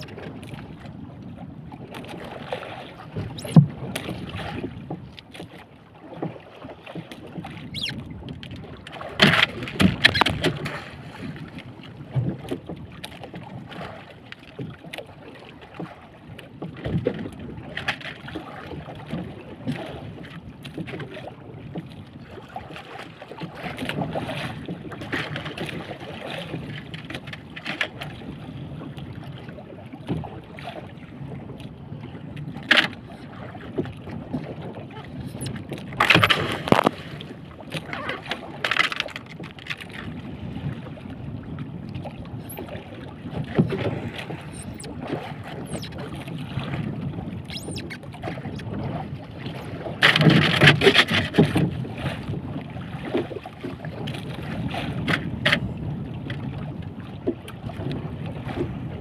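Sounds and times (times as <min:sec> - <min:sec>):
wind on microphone: 0:00.0 - 0:05.1, 0:07.3 - 0:12.8, 0:33.2 - 0:38.6, 0:39.9 - 0:59.0
water against boat hull: 0:00.0 - 0:59.0.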